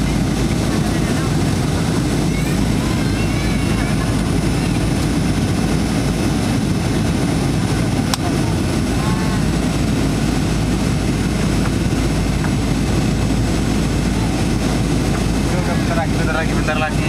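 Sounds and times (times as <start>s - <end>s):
airplane cabin engine noise: 0.0s - 17.0s
rushing airflow: 0.0s - 17.0s.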